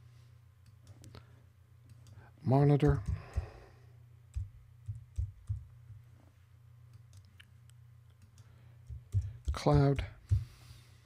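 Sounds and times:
faint low hum: 0.0s - 11.0s.

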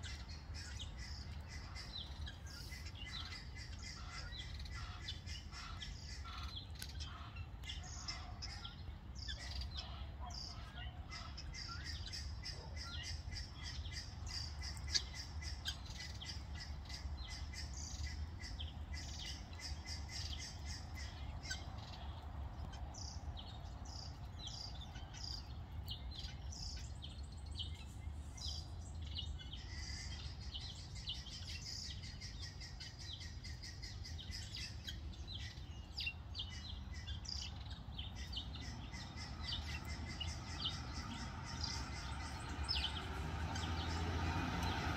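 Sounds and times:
guinea fowl chicks peeping: 0.0s - 21.7s.

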